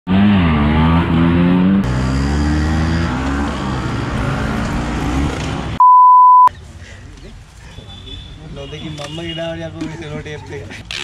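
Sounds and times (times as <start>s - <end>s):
scooter engines revving: 0.1s - 5.8s, 10.8s - 11.0s.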